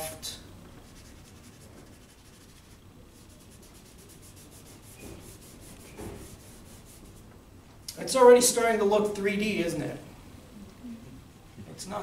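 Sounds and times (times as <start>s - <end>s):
charcoal rubbing on paper: 0.8s - 7.3s.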